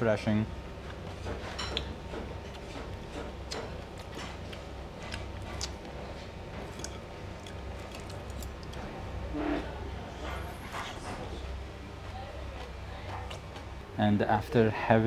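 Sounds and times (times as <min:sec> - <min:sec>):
chewing crunchy salad: 0:00.9 - 0:09.3, 0:12.4 - 0:13.8.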